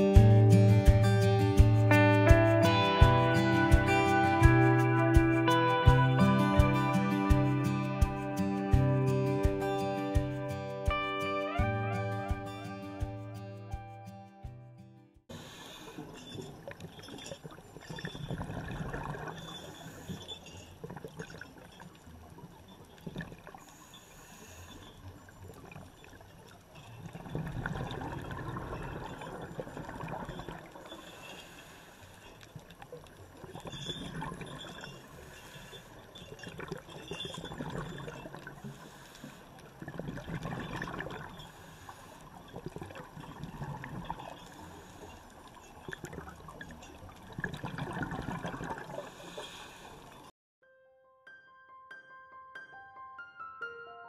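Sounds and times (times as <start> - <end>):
underwater scuba exhaust bubbles: 15.3 - 50.3.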